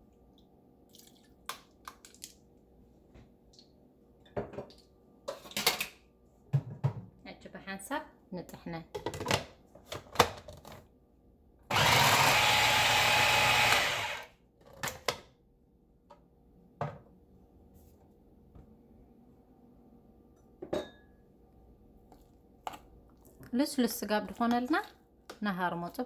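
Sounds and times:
food processor motor running: 11.7 - 14.3.

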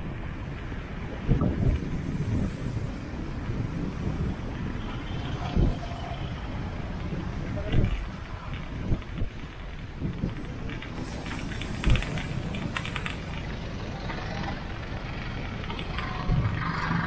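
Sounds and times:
bicycle tyres rumbling: 0.0 - 17.0
small clicks and rattles: 7.6 - 17.0
air rushing past: 8.7 - 17.0.

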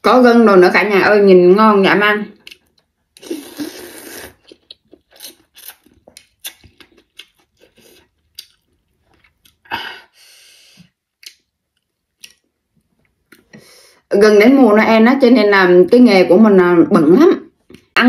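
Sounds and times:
person slurping noodles: 3.2 - 6.0
wet chewing smacks: 4.4 - 9.7.

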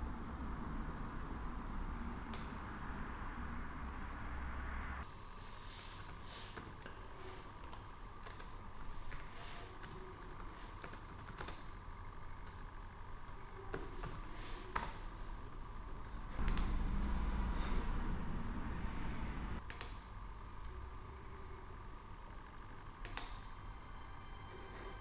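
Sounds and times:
laptop keyboard typing: 7.6 - 11.8, 12.4 - 15.1, 16.4 - 17.1, 19.6 - 20.1
low rumble: 16.4 - 19.6.

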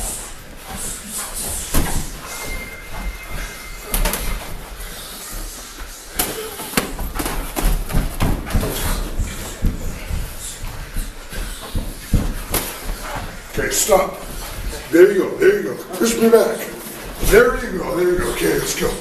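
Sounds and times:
boxing gloves smacking: 0.8 - 2.2, 6.1 - 13.5.

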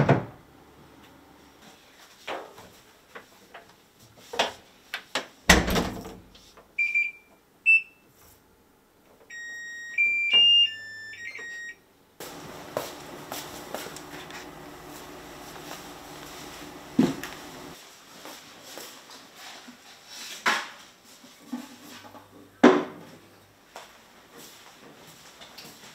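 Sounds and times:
knocks and thump of laundry: 0.0 - 0.4, 5.5 - 6.3, 16.6 - 17.5.

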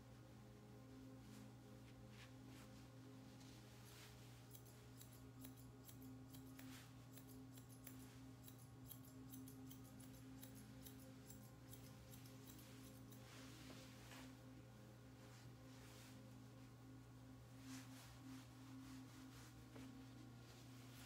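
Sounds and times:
steady low hum: 0.0 - 21.0
grooming shears snipping: 4.4 - 13.3.

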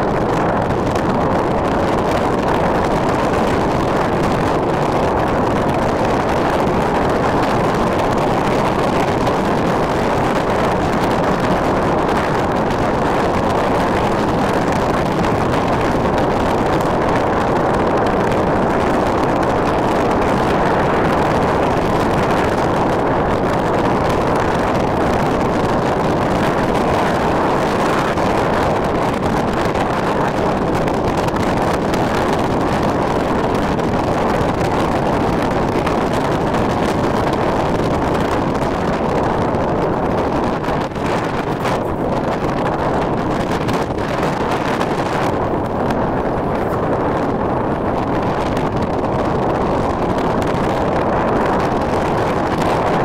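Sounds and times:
wind rushing over microphone: 0.0 - 53.0.

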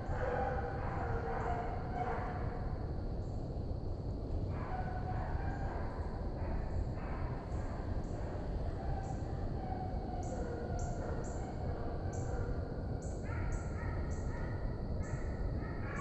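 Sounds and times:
insects pulsing: 4.5 - 16.0.

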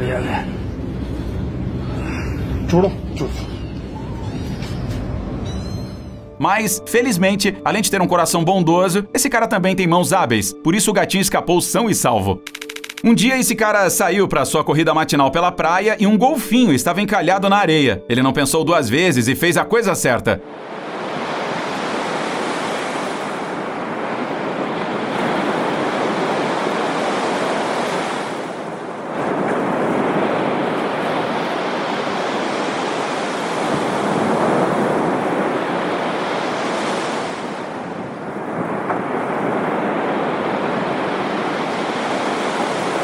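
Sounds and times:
ocean surf breaking: 20.4 - 43.0
wind buffeting microphone: 20.8 - 43.0.

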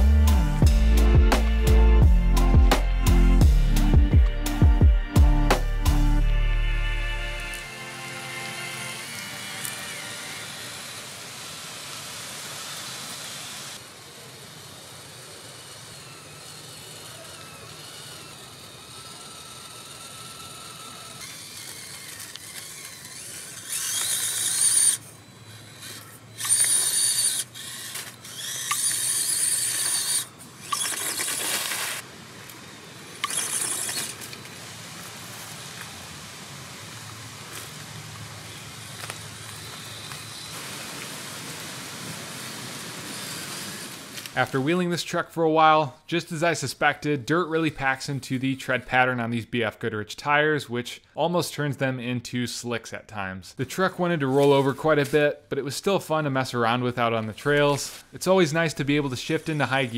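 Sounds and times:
small electric motor whining: 5.8 - 44.4
outdoor hiss: 7.3 - 46.9, 56.2 - 59.9.

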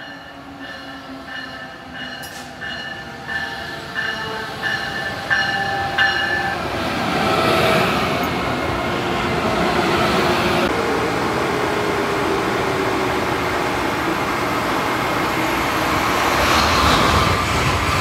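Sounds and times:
train bell striking: 0.0 - 6.7
train passing close by: 0.0 - 18.0.

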